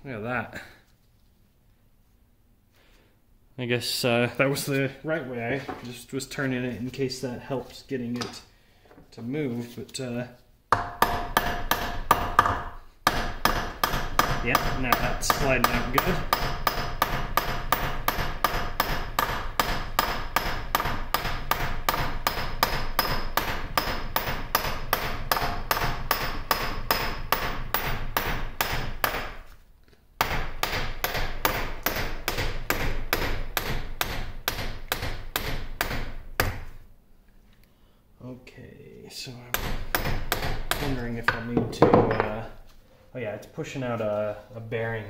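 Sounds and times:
hammer striking steel punch: 10.7s - 29.4s.

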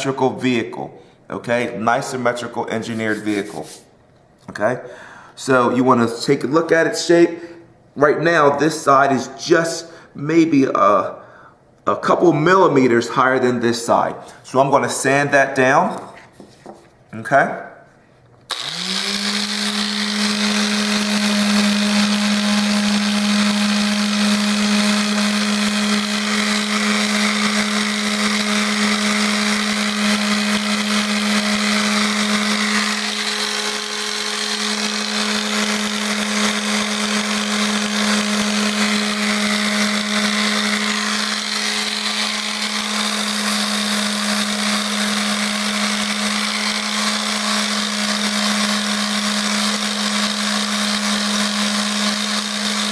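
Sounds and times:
sandpaper hissing on wood: 2.9s - 3.9s
electric sander running: 18.5s - 52.9s.

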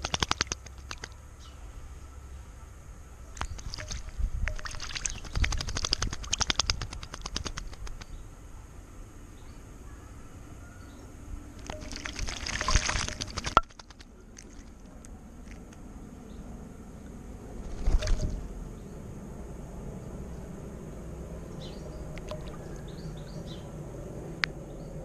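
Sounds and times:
bird splashing in water: 3.4s - 8.1s, 11.6s - 15.6s.

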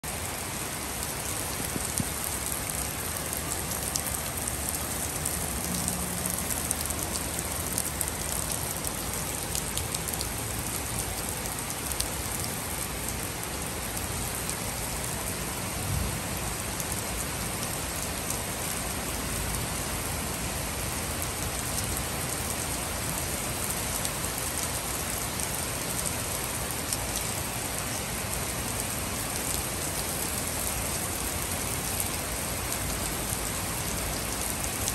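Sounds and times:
heavy rain on wooden deck: 0.0s - 34.9s
raindrops ticking close by: 0.1s - 34.9s.

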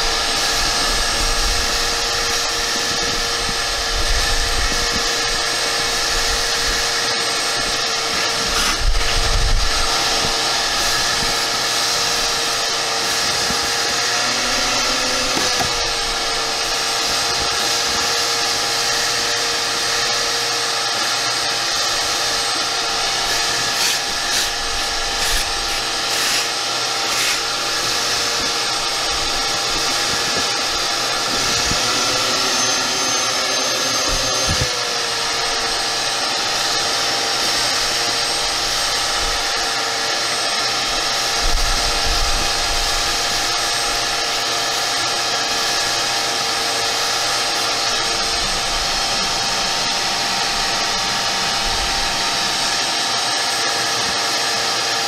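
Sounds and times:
shop vacuum running: 0.0s - 55.0s.

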